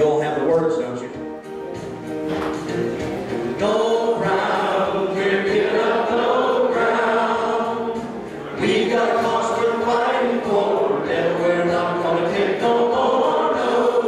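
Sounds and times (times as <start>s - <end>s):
congregation singing a hymn: 3.3s - 14.0s.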